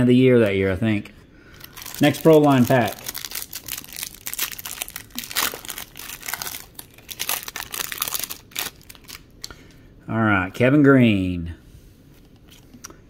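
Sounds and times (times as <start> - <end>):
foil wrapper crinkling: 1.5 - 9.5.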